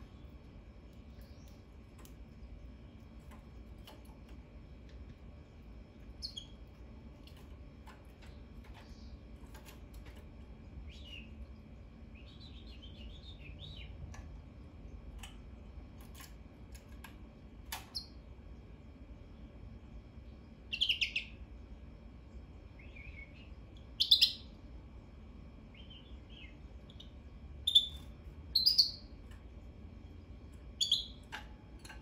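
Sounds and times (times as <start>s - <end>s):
bird chirping and twittering: 6.0s - 6.7s, 10.7s - 14.0s, 20.7s - 21.4s, 22.8s - 24.6s, 25.7s - 29.2s, 30.7s - 31.4s.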